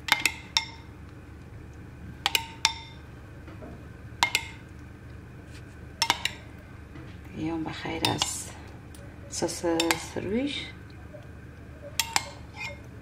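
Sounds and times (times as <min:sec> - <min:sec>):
utensil clinking against dish: 0:04.2 - 0:04.7, 0:06.0 - 0:06.6, 0:08.0 - 0:10.2, 0:11.9 - 0:12.9.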